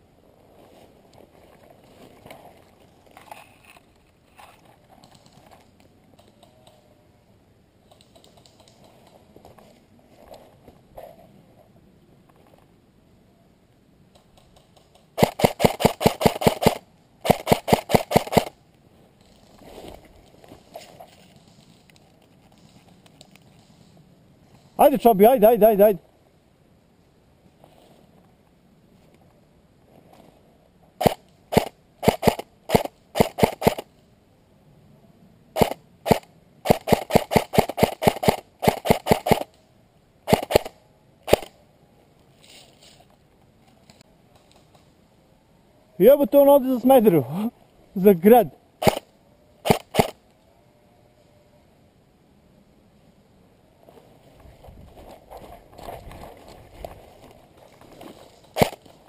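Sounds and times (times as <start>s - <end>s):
rustle of brush: 0.0s - 6.0s, 18.7s - 24.8s, 26.7s - 30.8s, 41.9s - 45.2s, 52.8s - 59.0s
airsoft rifle shots: 15.2s - 18.6s, 31.0s - 33.9s, 35.6s - 39.5s, 40.3s - 41.6s, 48.8s - 50.2s, 58.6s - 58.8s.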